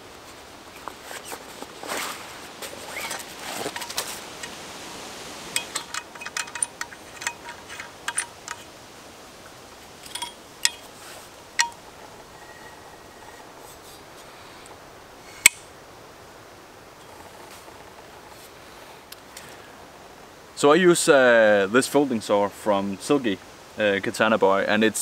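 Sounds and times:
fabric sheath rustle: 0:00.7 - 0:04.8
light metallic clicks: 0:10.0 - 0:10.9, 0:11.6 - 0:11.8.

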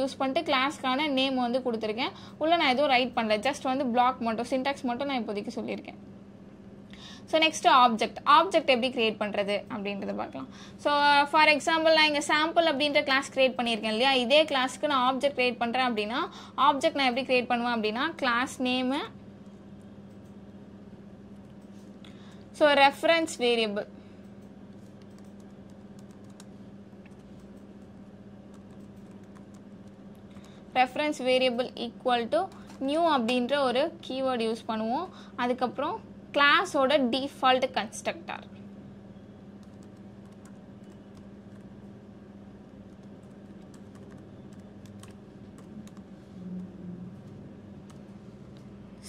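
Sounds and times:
steady low hum: 0:00.0 - 0:49.0
keyboard typing: 0:24.2 - 0:30.6, 0:39.6 - 0:41.7, 0:42.8 - 0:46.1
low hum: 0:38.4 - 0:49.0.

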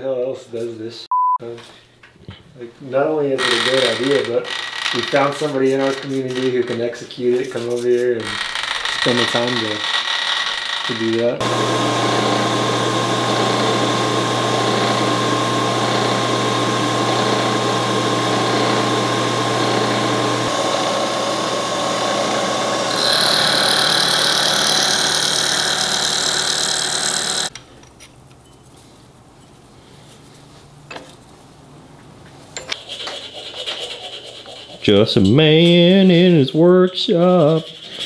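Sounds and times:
low shop noise: 0:01.4 - 0:38.0
milling machine cutting metal: 0:08.2 - 0:27.5.

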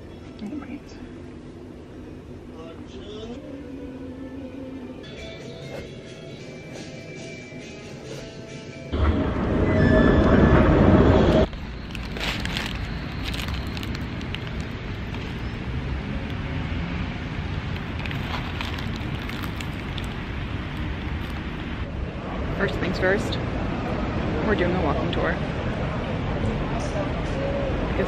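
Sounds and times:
wind: 0:08.9 - 0:28.0
distant traffic: 0:09.0 - 0:28.0
paper bag crinkling: 0:11.6 - 0:15.4, 0:17.8 - 0:21.5.

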